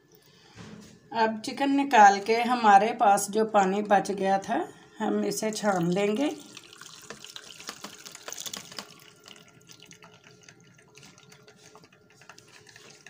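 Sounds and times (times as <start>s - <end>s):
liquid pouring and splashing: 5.4s - 13.0s.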